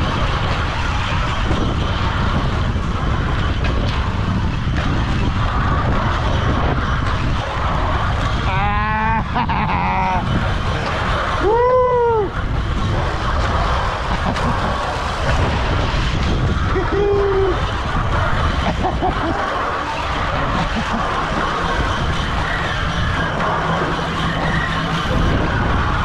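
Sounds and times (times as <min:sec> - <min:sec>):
loud rumbling ride noise: 0:00.0 - 0:26.0
person whooping: 0:08.4 - 0:10.2, 0:11.4 - 0:12.4, 0:16.7 - 0:17.6
person yelling: 0:08.5 - 0:10.2.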